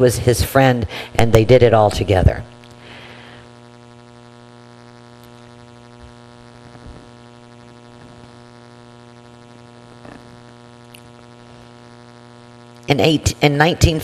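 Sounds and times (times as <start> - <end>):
steady buzzing hum: 0.0 - 14.0.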